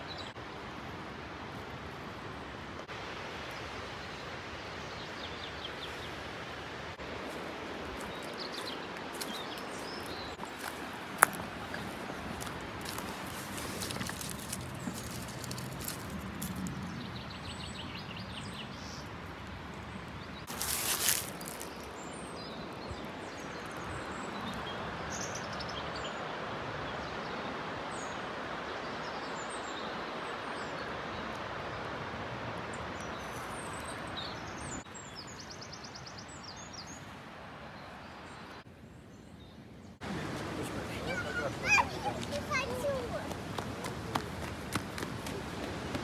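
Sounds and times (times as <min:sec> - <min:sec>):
mountain stream rushing: 0:00.0 - 0:35.3, 0:40.0 - 0:46.0
small birds chirping: 0:07.9 - 0:19.2, 0:19.8 - 0:26.3, 0:32.7 - 0:37.2, 0:37.8 - 0:46.0.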